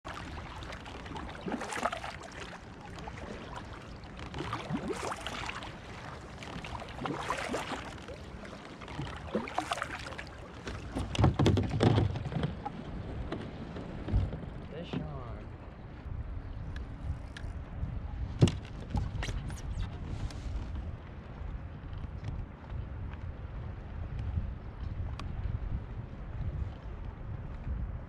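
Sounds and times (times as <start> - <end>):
kayak paddle splashing: 0.0 - 17.6
water lapping: 0.0 - 21.3
bumps and knocks: 11.0 - 12.6.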